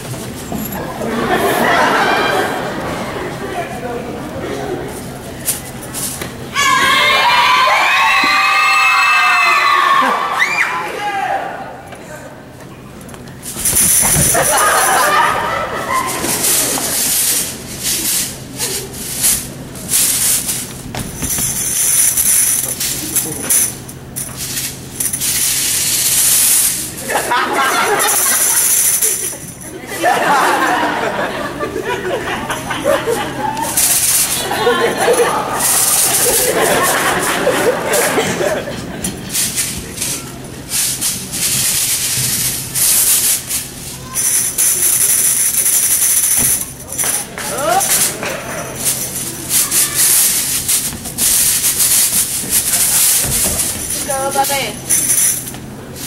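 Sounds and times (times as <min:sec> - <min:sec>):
tambourine shaken and struck: 0:13.4 - 0:30.3, 0:33.7 - 0:38.4, 0:39.2 - 0:56.0.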